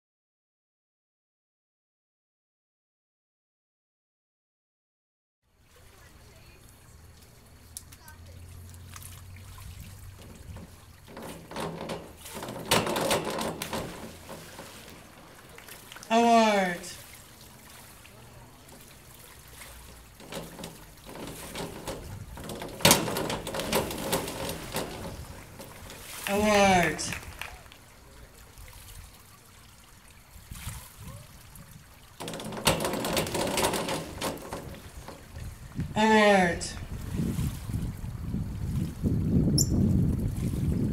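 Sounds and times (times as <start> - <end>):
pool water trickling: 5.4 - 40.9
diving board clattering: 7.0 - 28.2, 32.1 - 37.0
springboard thumps: 10.0 - 16.8, 19.2 - 27.4, 32.2 - 35.9.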